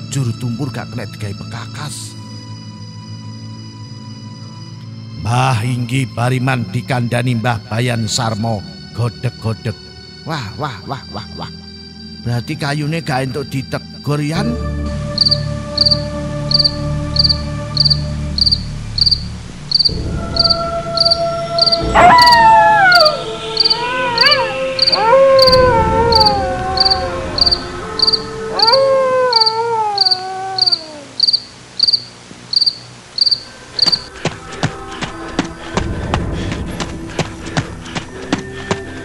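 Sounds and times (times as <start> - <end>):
crickets chirping: 0.0 - 39.0
low drone: 14.5 - 39.0
long rising and falling howls: 20.1 - 31.2.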